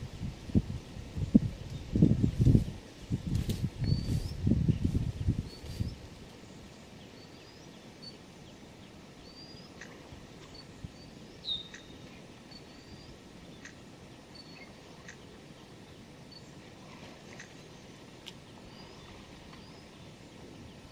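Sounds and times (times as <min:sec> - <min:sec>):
bird chirping: 0:07.0 - 0:15.4.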